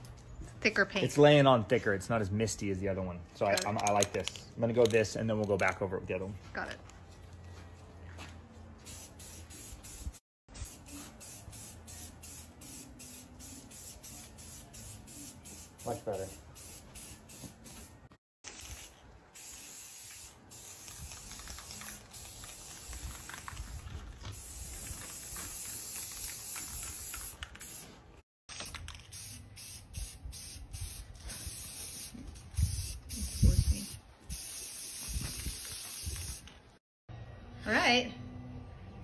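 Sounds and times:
spray paint can hissing: 8.8s - 27.9s, 28.5s - 36.5s.

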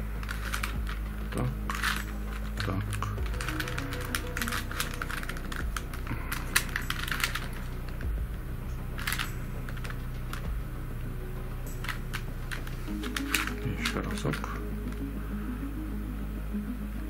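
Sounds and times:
plastic puzzle pieces clicking: 0.0s - 8.1s, 9.0s - 10.5s, 11.8s - 15.0s.

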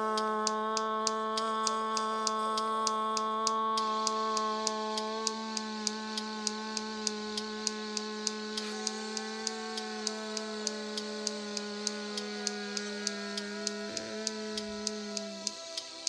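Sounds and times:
light repeating tick: 0.0s - 16.0s
drone chord music: 3.6s - 16.0s.

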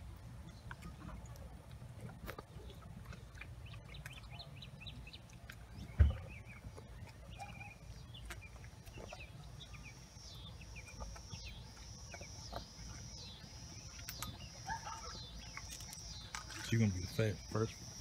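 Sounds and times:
birds chirping: 0.0s - 18.0s
low outdoor rumble: 0.0s - 18.0s.

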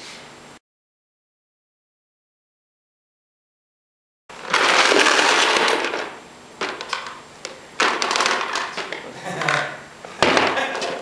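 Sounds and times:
small balls clattering into plastic tub: 4.3s - 11.0s.

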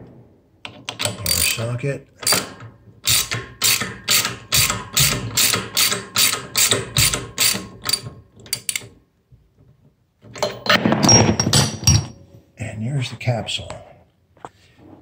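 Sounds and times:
socket ratchet clicking: 2.2s - 8.9s.

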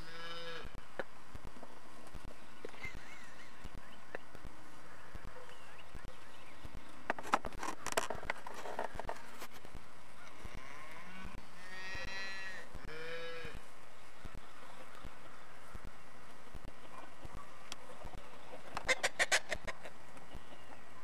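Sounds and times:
farm animal calling: 0.0s - 0.8s, 10.1s - 15.9s, 16.7s - 20.8s
sharp knocks and rustles: 7.0s - 9.8s.

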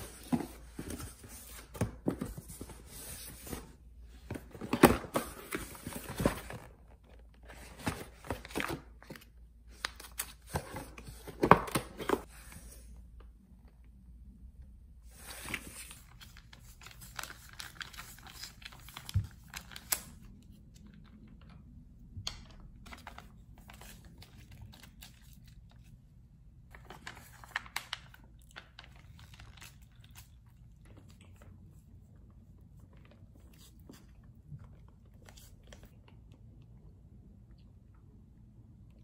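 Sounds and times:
plastic pouches crinkling: 26.7s - 31.1s.

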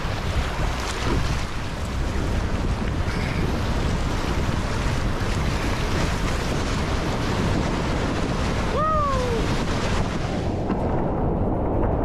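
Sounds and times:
whitewater rushing: 0.0s - 11.0s
wind buffeting microphone: 0.0s - 12.0s.

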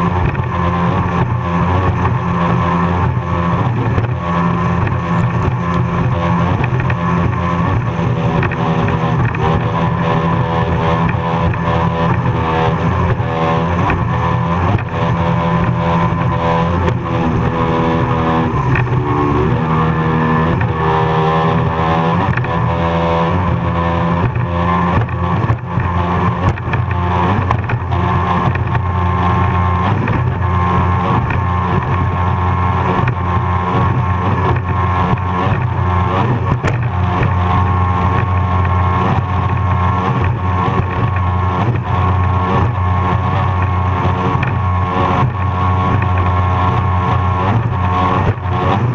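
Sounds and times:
water rushing: 0.0s - 22.4s
powerboat engine running hard: 0.0s - 48.9s
wind rush: 0.0s - 48.9s.

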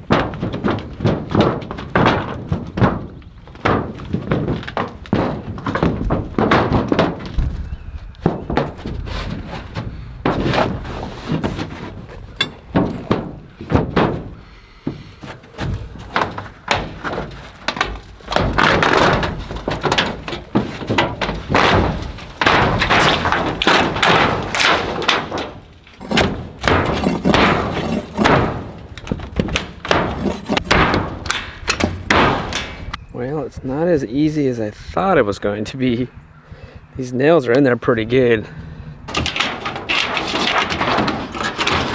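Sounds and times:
pry bar thunks and knocks: 0.0s - 7.6s, 12.4s - 14.4s, 15.6s - 33.0s
metal roofing scraping and rattling: 0.0s - 33.0s, 37.9s - 41.9s.

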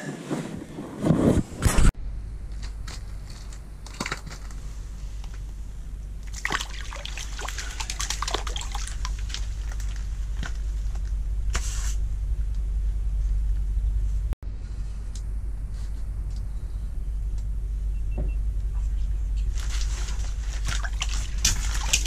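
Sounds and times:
steady low rumble: 0.0s - 22.0s
water splashing and sloshing: 2.6s - 11.1s, 19.5s - 22.0s.

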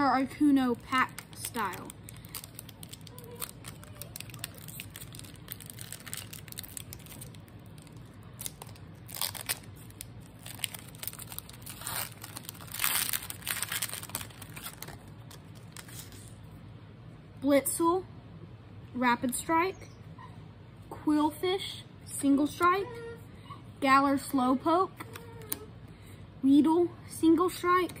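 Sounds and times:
foil wrapper tearing and crinkling: 0.7s - 16.3s.

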